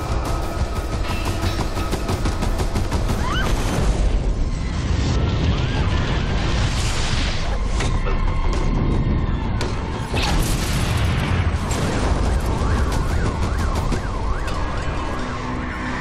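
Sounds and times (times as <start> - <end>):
alarm siren wailing: 11.7 - 16.0.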